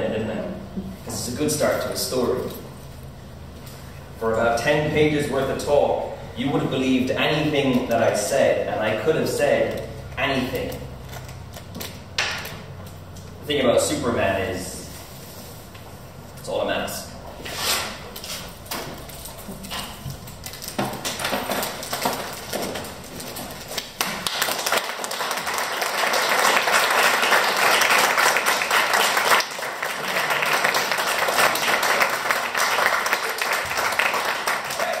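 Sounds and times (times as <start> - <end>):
audience applauding: 23.8 - 35.0.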